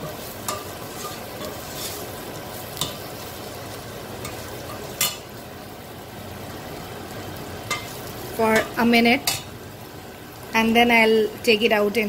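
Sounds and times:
spoon scraping a metal pot: 0.0s - 2.1s
okra sizzling in a pot: 0.0s - 12.0s
spoon clinking on pot: 0.4s - 2.0s.

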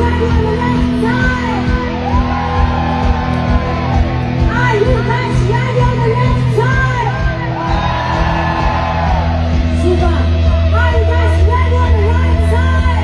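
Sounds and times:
heavy metal band playing: 0.0s - 13.0s
woman singing: 4.5s - 7.6s.

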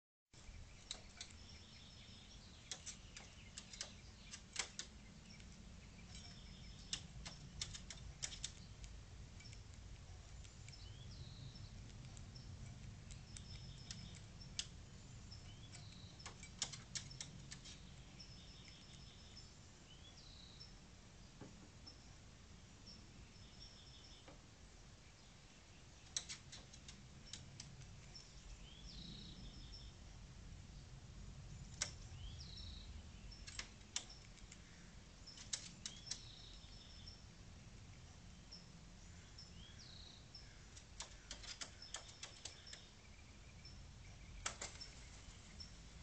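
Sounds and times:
low steady rumble: 0.4s - 23.7s
small birds chirping: 0.4s - 46.0s
crow beak pecking on plate: 0.8s - 10.9s, 15.4s - 18.0s.

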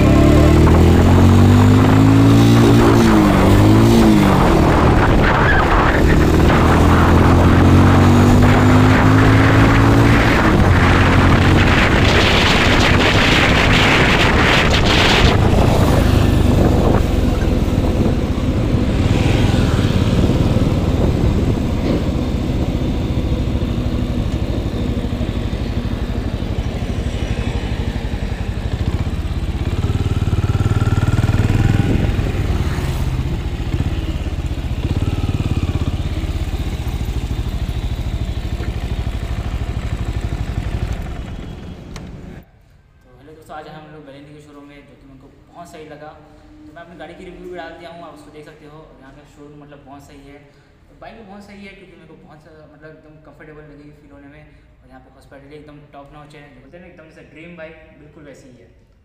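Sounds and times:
motorcycle engine revving: 0.0s - 42.4s.

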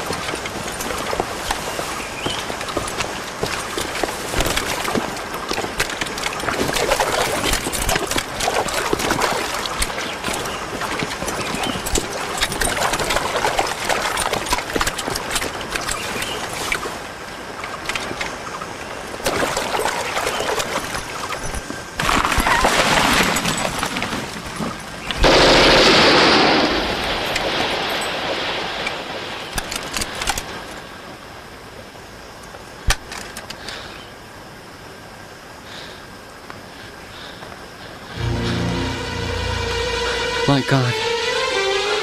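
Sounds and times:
splashing through a stream: 0.0s - 31.0s
rifle and machine-gun fire: 25.2s - 27.7s.

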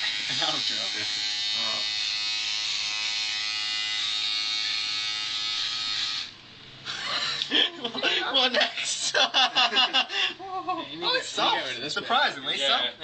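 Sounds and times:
electric shaver buzzing: 0.0s - 7.6s.

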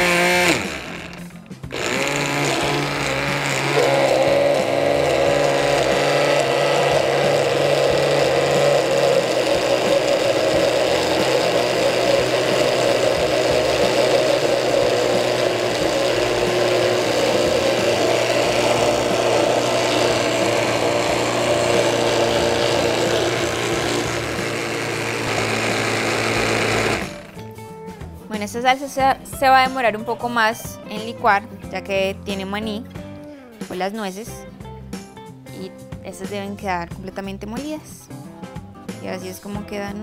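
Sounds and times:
blender motor grinding: 0.0s - 27.5s.

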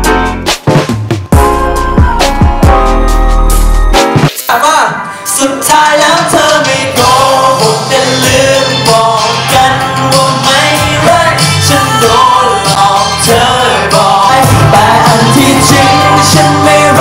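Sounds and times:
amplified backing track: 0.0s - 17.0s
men rapping into microphones: 4.4s - 17.0s.

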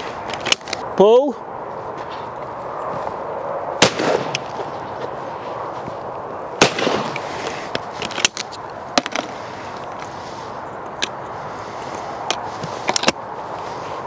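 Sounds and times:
shotgun shots with echo: 3.8s - 4.4s, 6.6s - 7.1s.

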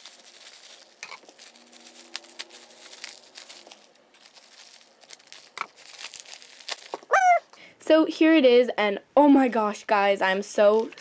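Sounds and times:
scissors cutting plastic: 0.0s - 7.2s
bubble wrap crinkling: 0.0s - 7.5s.

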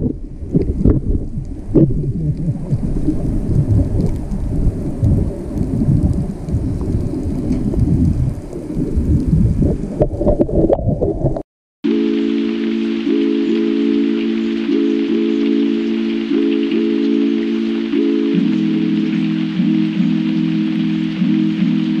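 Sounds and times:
wind buffeting microphone: 0.0s - 11.4s
background music with sustained chords: 11.9s - 22.0s.

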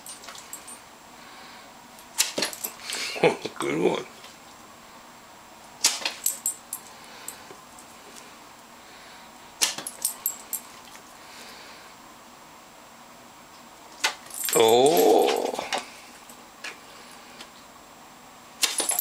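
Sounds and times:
dog collar tags jingling: 0.0s - 0.8s, 9.8s - 10.7s, 14.2s - 15.6s.

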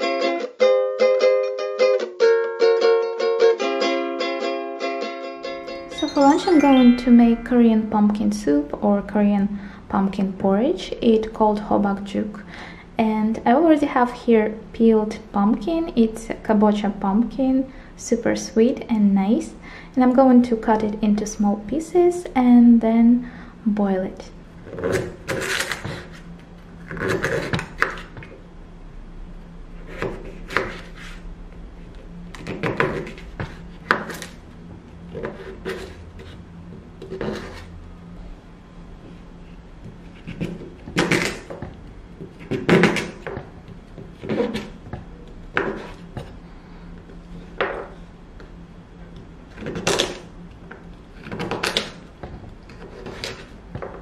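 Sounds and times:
knife chopping on wooden board: 32.4s - 34.3s, 40.2s - 46.3s.

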